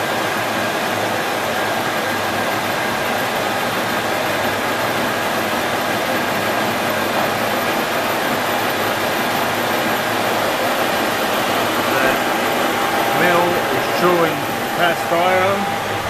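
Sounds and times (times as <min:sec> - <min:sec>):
milling machine cutting cast iron: 0:07.0 - 0:16.0.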